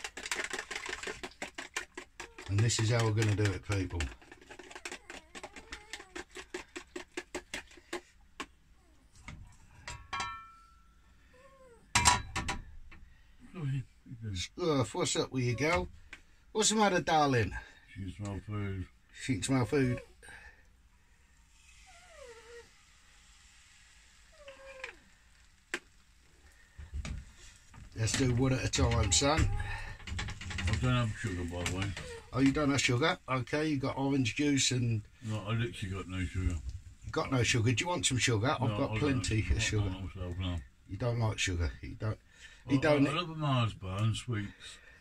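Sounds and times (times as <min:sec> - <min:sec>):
batter whisked in plastic jug: 0:00.0 - 0:09.8, 0:17.5 - 0:43.0
small dog whining: 0:04.7 - 0:06.3, 0:11.2 - 0:12.0, 0:21.7 - 0:22.8, 0:24.3 - 0:25.1.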